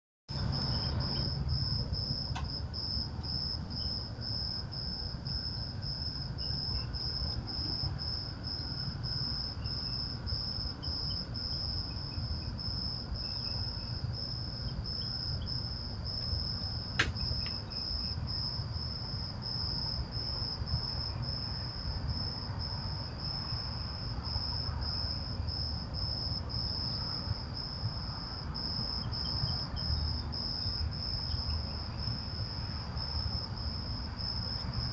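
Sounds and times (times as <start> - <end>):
crickets chirping: 0.3 - 34.9
sharp click: 17.0 - 17.6.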